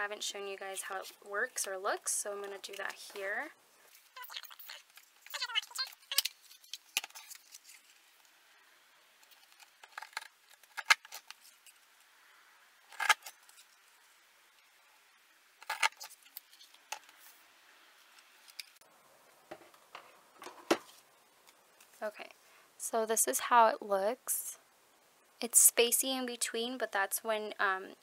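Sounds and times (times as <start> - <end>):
paper handling: 4.8 - 8.1.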